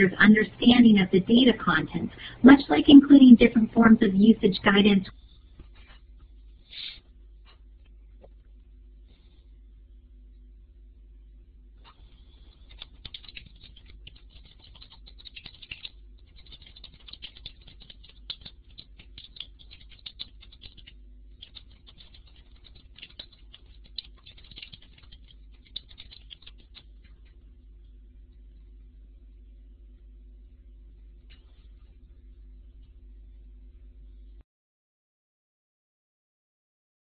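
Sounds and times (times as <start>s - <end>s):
faint electrical hum: 0.0s - 34.4s
scratchy clicking and rustling: 11.8s - 27.4s.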